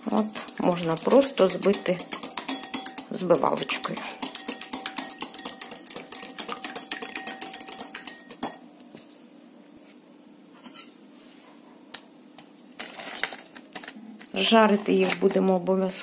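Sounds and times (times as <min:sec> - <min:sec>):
whisk clinking against glass bowl: 0:00.2 - 0:08.6.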